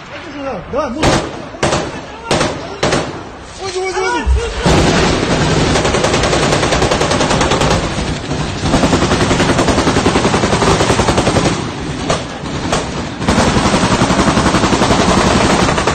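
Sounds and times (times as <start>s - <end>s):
automatic gunfire: 1.0s - 3.2s, 4.6s - 15.9s.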